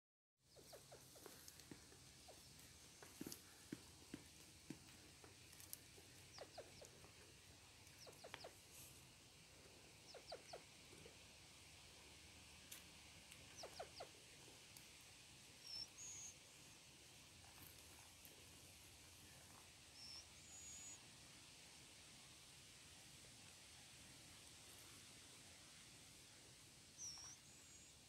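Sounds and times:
grouse clucking: 0.5 - 3.5, 5.2 - 8.7, 10.0 - 11.2, 13.4 - 14.2.

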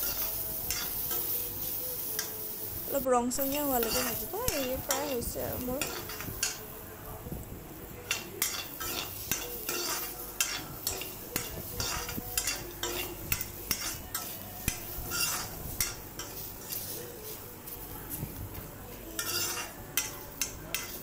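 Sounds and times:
metal ladle scraping a pan: 0.0 - 2.3, 3.5 - 6.7, 8.0 - 17.8, 19.1 - 21.0
food sizzling: 0.0 - 21.0.

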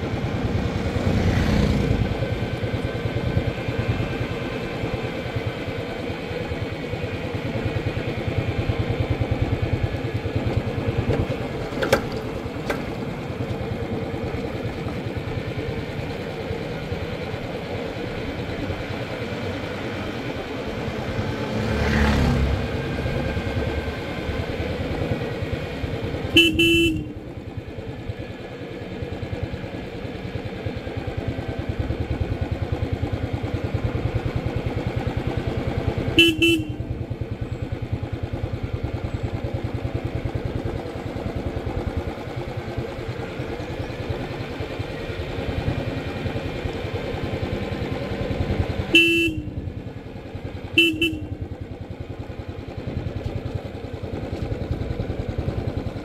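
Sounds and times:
motorcycle engine running: 0.0 - 56.0
horn honk: 26.3 - 27.2, 36.0 - 37.0, 48.9 - 49.7, 50.6 - 51.5.

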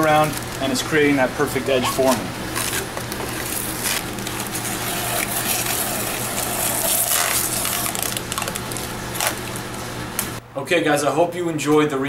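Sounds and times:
masking tape crinkling: 0.0 - 9.8
tape ripping: 1.8 - 9.6.

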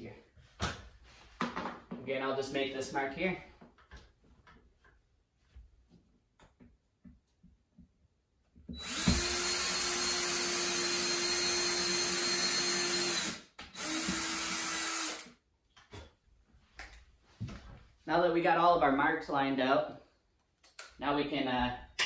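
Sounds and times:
cordless drill boring into wood: 8.8 - 15.3.

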